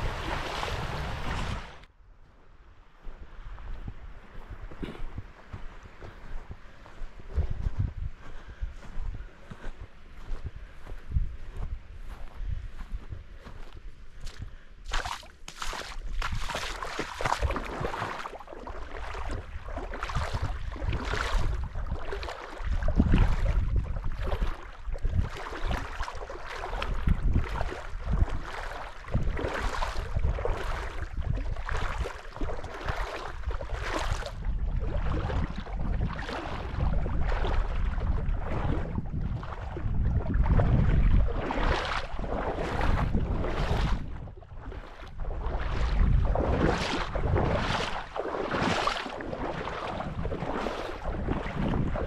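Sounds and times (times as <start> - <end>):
water rushing and splashing: 0.0 - 1.9, 14.9 - 52.0
wind rumbling on microphone: 0.0 - 52.0.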